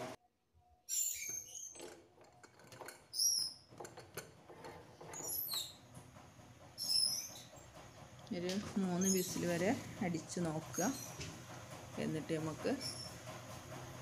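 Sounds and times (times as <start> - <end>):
high chirp-like squeaks: 0.9 - 2.0, 6.8 - 7.6.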